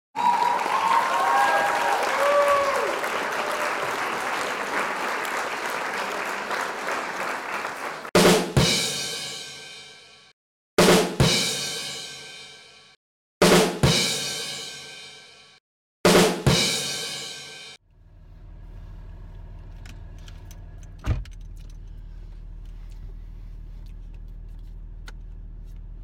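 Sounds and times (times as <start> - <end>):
noisy music with drums: 8.2 - 9.8, 10.8 - 12.6, 13.4 - 15.4, 16.1 - 17.8
drum-and-cymbal hits: 8.2 - 10.1, 10.8 - 17.8.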